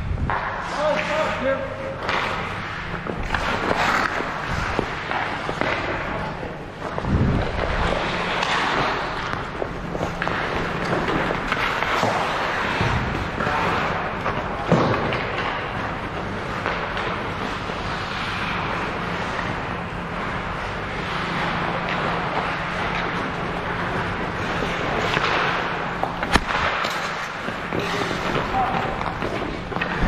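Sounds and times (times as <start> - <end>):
ice rink noise: 0.0 - 30.0
sharp impact cracks: 26.2 - 27.4.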